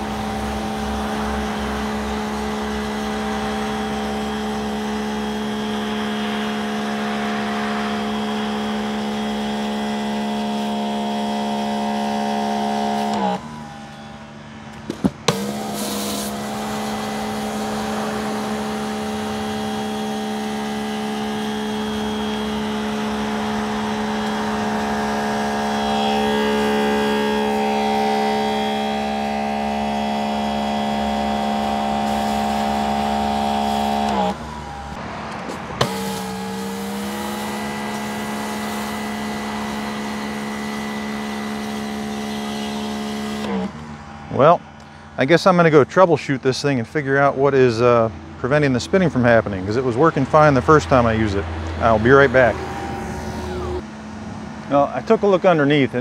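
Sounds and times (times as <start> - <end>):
pressure washer motor humming: 0.0 - 56.0
water spraying on concrete: 15.3 - 28.3.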